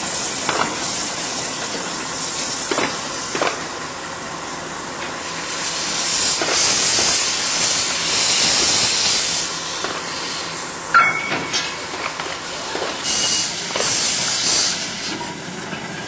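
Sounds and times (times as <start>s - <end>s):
locomotive steam hissing: 0.0s - 10.9s, 11.6s - 16.0s
sharp squeal: 11.0s - 11.9s.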